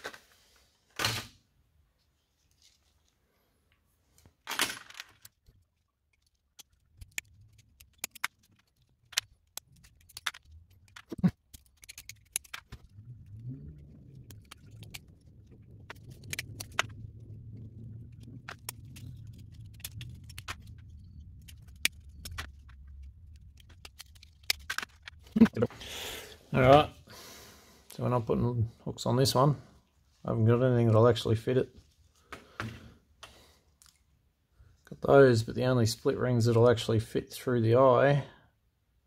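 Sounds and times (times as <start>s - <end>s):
low rumble: 12.8s - 24.5s.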